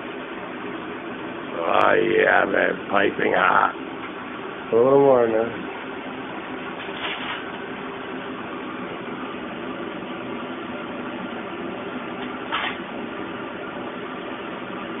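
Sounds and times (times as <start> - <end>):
electric furnace humming: 0.0 - 15.0
short hissing scrape: 6.8 - 7.4.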